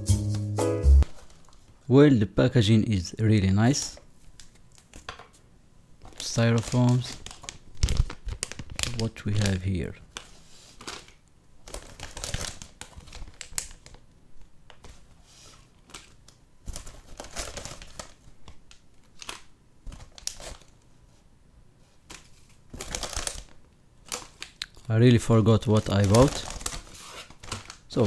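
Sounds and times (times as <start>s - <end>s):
plastic bags crinkling: 6.0s - 14.1s, 15.7s - 20.8s, 22.1s - 28.0s.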